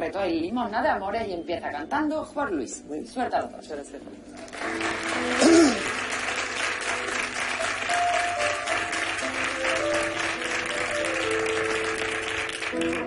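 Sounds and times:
audience applauding: 4.4 - 13.0.

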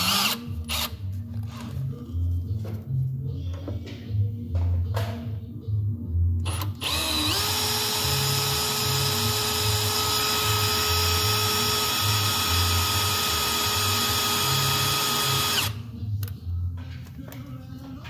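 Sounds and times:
cordless drill whining: 0.0 - 1.7, 6.5 - 15.8
background music with beat: 0.1 - 6.6, 15.6 - 18.0.

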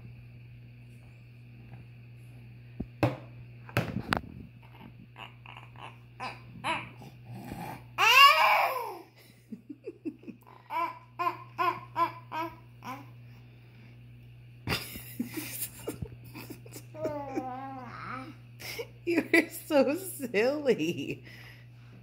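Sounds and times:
baby babbling and laughing: 4.6 - 7.2, 8.0 - 9.1, 10.7 - 13.2, 16.9 - 18.4
baby squealing: 5.2 - 7.0, 8.0 - 9.0, 10.7 - 13.1.

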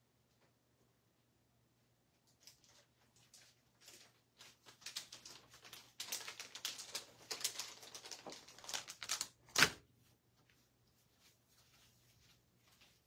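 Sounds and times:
plastic pouch crinkling: 2.4 - 9.8.

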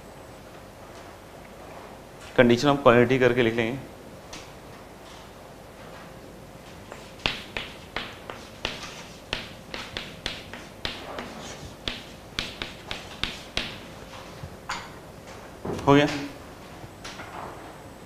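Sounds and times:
chalk tapping and scratching: 6.9 - 14.3.

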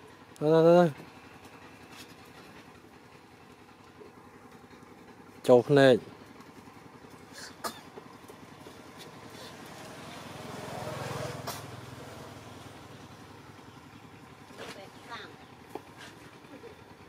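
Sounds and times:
vehicle engine passing: 6.7 - 14.8.

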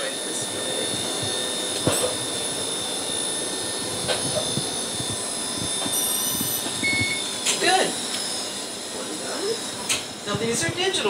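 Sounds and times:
high-pitched whine: 0.0 - 11.0
machine mechanical hum: 0.0 - 11.0
short beep: 6.8 - 7.3.

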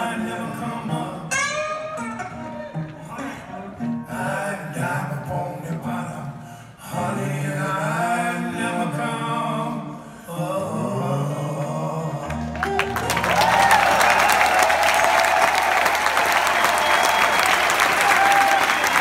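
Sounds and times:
acoustic guitar picking: 0.0 - 6.3
audience applause and cheering: 12.4 - 19.0.

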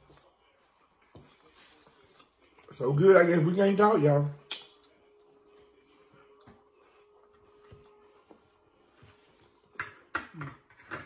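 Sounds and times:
soft chewing: 0.0 - 2.8, 4.3 - 10.1.

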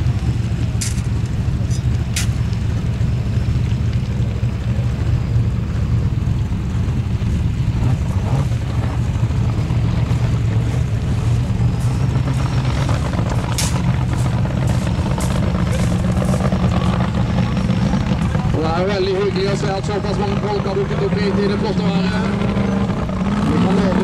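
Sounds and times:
car engine running: 0.0 - 24.0
sharp cracks: 0.8 - 2.7.

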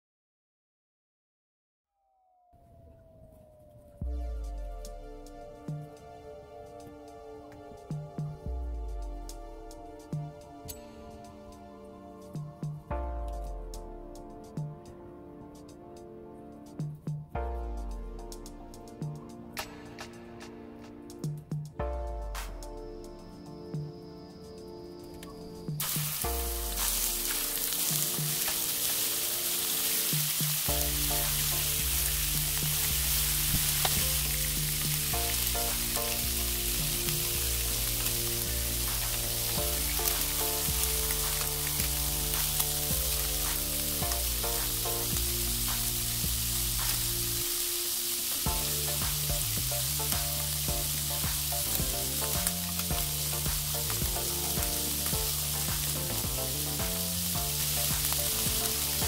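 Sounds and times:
background music: 3.8 - 59.0
shrimp sizzling in hot oil: 25.8 - 59.0.

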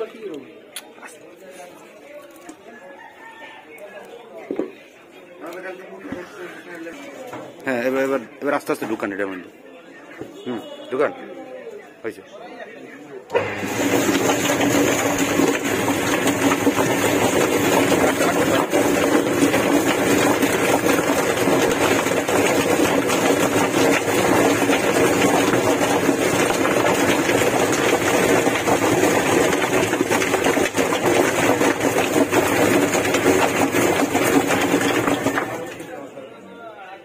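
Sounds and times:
chicken plucker motor humming: 13.3 - 35.8.

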